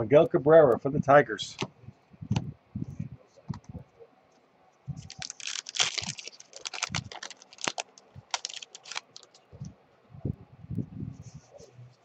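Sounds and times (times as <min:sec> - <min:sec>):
foil wrapper tearing and crinkling: 0:05.0 - 0:09.4.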